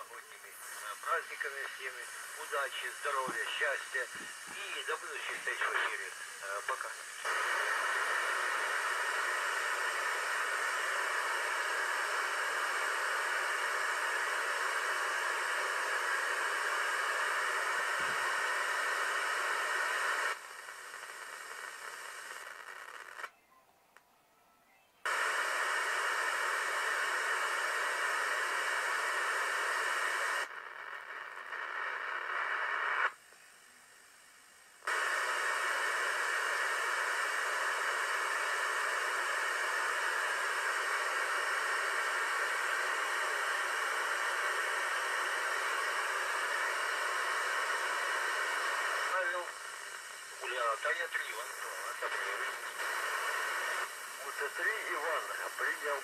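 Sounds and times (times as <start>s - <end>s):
radio receiver static hiss: 0.0s - 23.4s, 25.0s - 56.0s.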